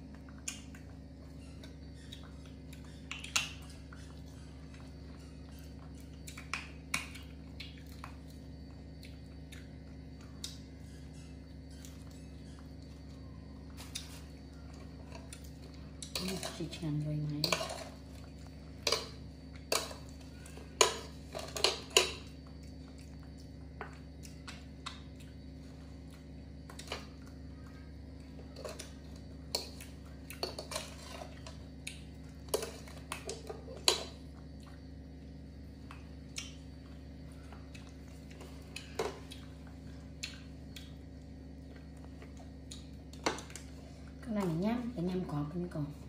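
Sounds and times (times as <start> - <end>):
steady low hum: 0.0 - 46.0.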